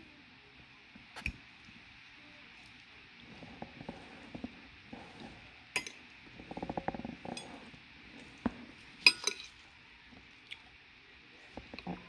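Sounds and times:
fork clinking on ceramic plate: 5.8s - 6.0s, 9.1s - 9.5s.

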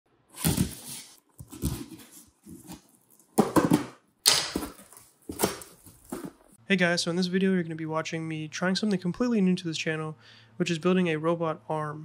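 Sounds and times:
knife slitting packing tape: 0.4s - 3.3s
packing paper rustling: 0.4s - 3.7s, 4.5s - 6.6s.

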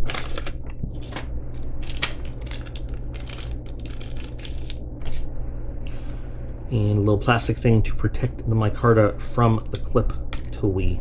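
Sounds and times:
plastic and paper crinkling: 0.0s - 5.2s.

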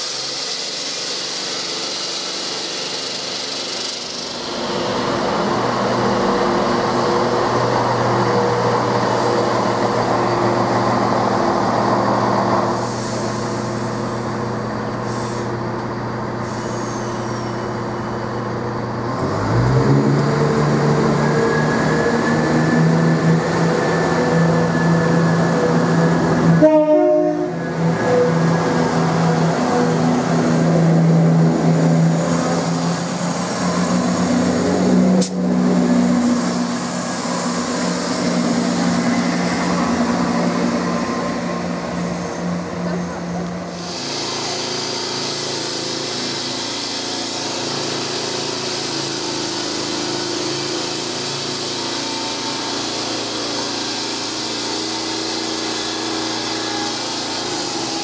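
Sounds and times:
train diesel engines running: 0.0s - 58.0s
train horn: 26.5s - 28.2s.

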